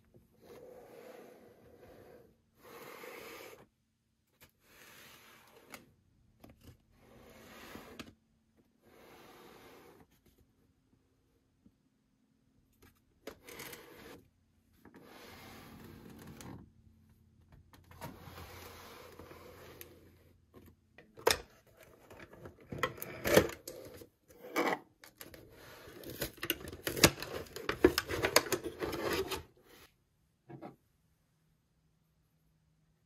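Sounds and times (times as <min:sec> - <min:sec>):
cardboard rubbing and sliding: 0:18.0 - 0:20.3.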